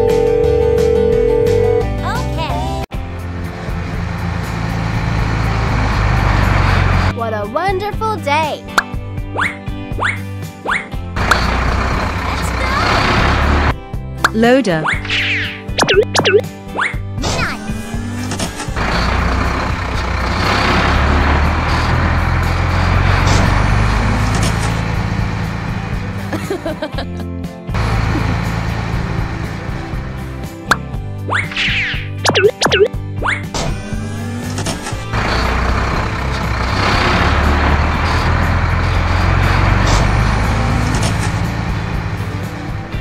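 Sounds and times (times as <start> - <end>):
wheel loader engine rumble: 2.9 - 7.1, 11.2 - 13.8, 18.2 - 26.9, 27.7 - 30.7, 34.2 - 43.0.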